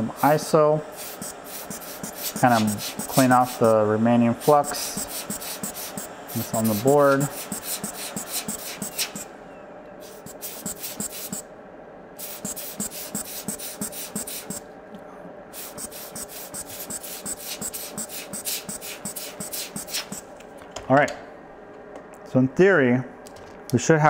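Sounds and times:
brush scrubbing circuit board: 0.2 - 3.8, 4.4 - 9.3, 10.0 - 11.4, 12.2 - 14.6, 15.6 - 20.2.

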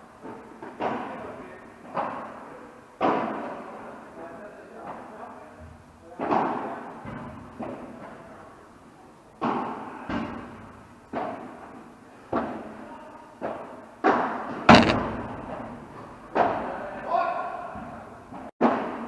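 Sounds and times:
padel ball hits: 14.7 - 15.5.

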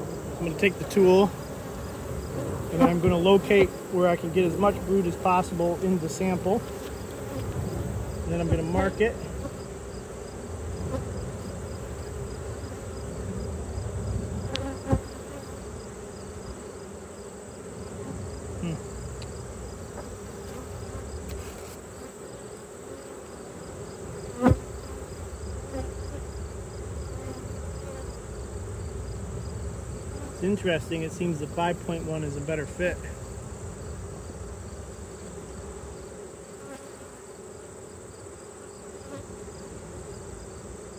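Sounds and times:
bees buzzing: 0.0 - 40.9.

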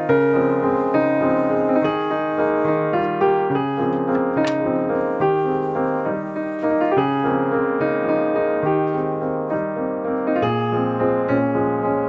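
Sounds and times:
piano music: 0.0 - 12.0.

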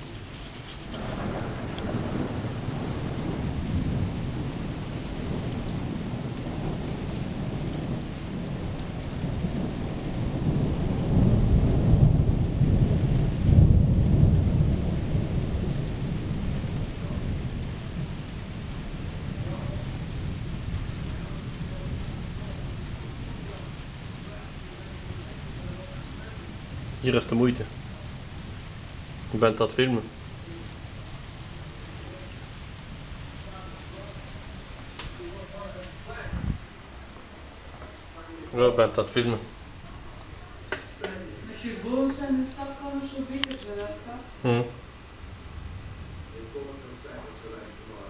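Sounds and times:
steady rain: 0.0 - 48.0
thunder rumbling: 0.0 - 48.0.

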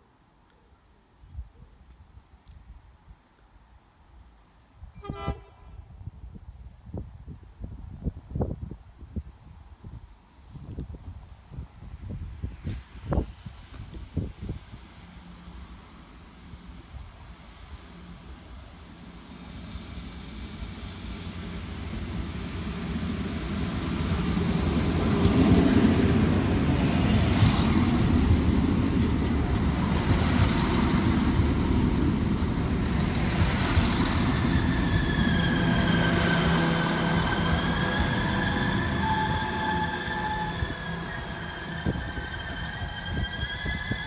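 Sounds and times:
diesel train rumbling past: 12.4 - 44.0
high squeal of train brakes: 19.2 - 21.9, 33.7 - 44.0.

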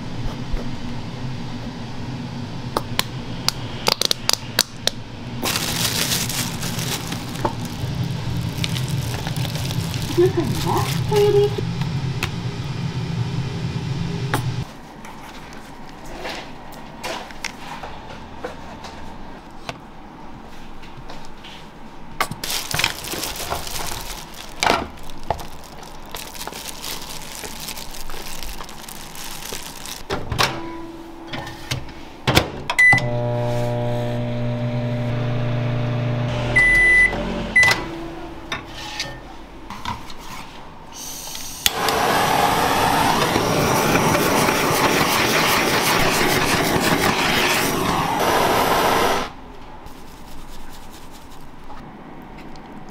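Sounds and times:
microwave humming: 0.8 - 14.7, 22.4 - 38.6, 41.6 - 47.2
microwave beeping: 32.7 - 38.4
butane torch hissing: 41.0 - 49.4.

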